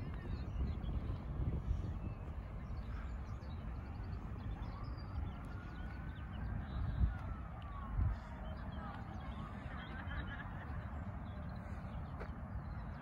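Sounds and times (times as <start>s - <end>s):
distant siren wailing: 2.8s - 11.8s.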